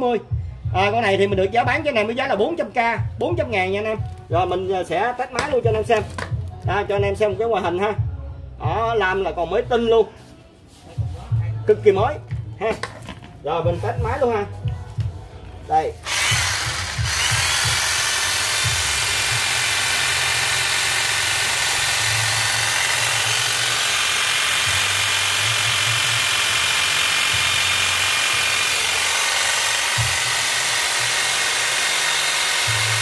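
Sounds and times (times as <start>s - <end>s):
electric hedge trimmer running: 16.0s - 33.0s.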